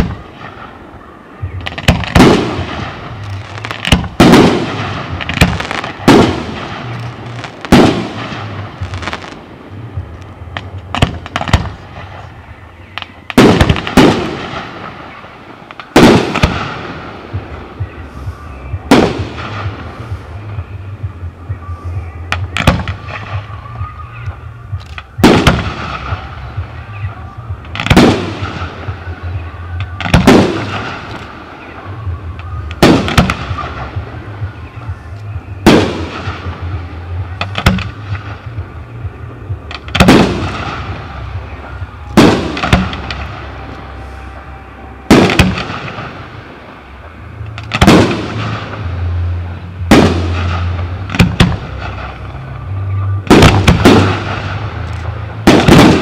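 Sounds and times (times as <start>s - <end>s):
firework bangs echoing: 0.0s - 9.7s, 10.5s - 18.1s, 18.8s - 20.4s, 22.3s - 23.6s, 25.1s - 35.0s, 35.6s - 39.0s, 39.6s - 52.5s, 53.2s - 56.0s.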